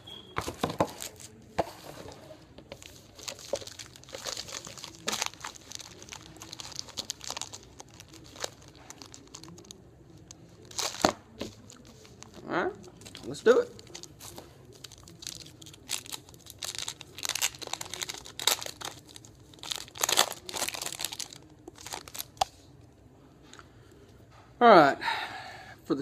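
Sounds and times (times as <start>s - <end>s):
foil wrappers crinkling: 2.7s - 22.6s.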